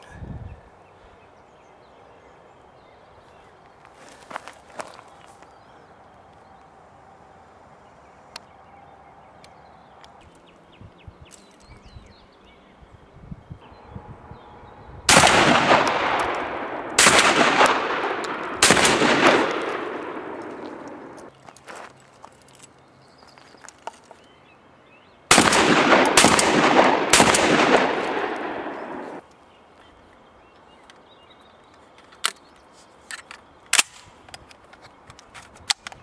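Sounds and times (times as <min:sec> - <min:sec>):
gunshot echo: 0:15.1 - 0:21.2, 0:25.3 - 0:29.2
shotgun shots: 0:15.1 - 0:21.2, 0:25.3 - 0:29.2.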